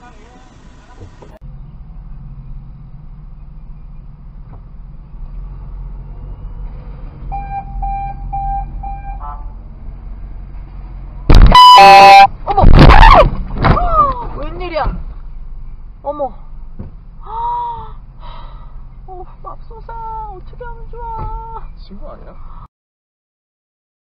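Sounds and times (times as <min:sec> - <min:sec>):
car horn beeping: 0:07.3 - 0:09.6, 0:11.3 - 0:12.3
loud burst with bending pitch: 0:11.3 - 0:13.0.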